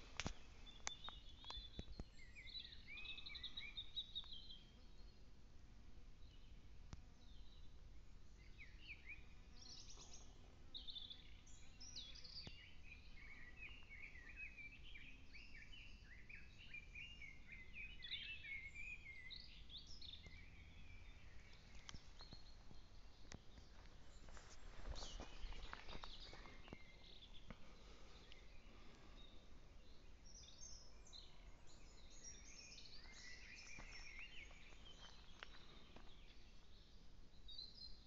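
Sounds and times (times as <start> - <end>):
songbird singing: 0.0 - 38.0
faint clicks: 21.4 - 22.5.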